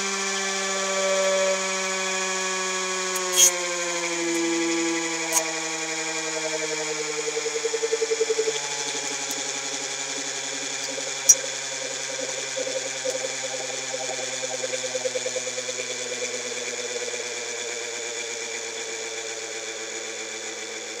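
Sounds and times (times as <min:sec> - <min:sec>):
motor generator whining down: 0:00.0 - 0:21.0
sharp click: 0:03.1 - 0:03.5.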